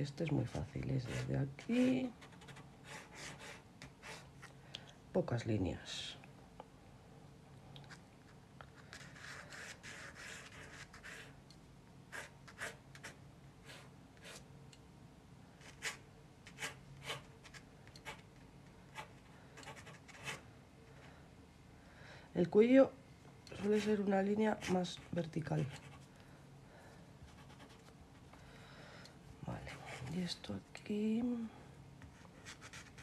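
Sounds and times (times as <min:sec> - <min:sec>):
pencil strokes on paper: 0:08.9 - 0:11.4, 0:23.6 - 0:26.1.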